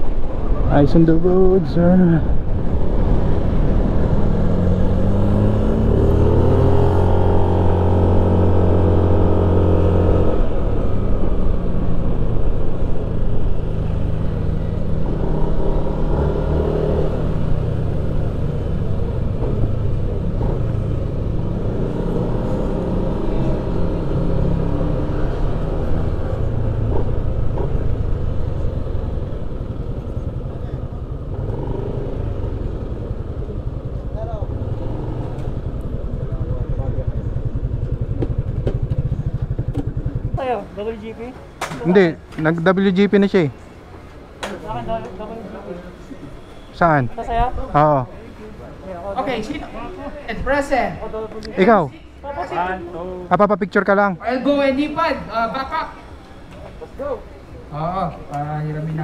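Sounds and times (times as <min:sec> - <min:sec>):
motorcycle engine revving: 0:02.5 - 0:41.1.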